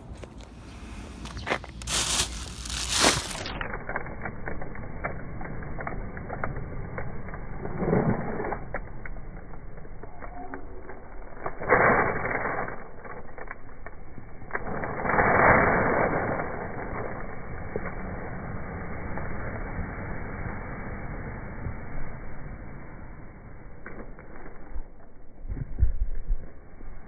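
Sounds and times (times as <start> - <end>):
plastic bags rustling: 1.2 - 4.6.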